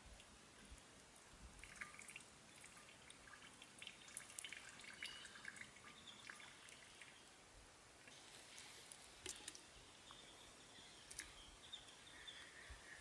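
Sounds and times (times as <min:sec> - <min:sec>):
oil trickling into a pot: 0:01.6 - 0:07.1
small crackling ticks: 0:08.1 - 0:10.2, 0:11.0 - 0:11.4.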